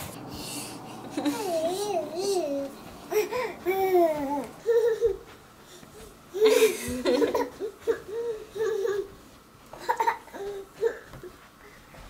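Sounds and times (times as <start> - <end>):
toddler laughing: 0.9 - 5.4, 6.3 - 11.2
toddler babbling: 1.2 - 5.3.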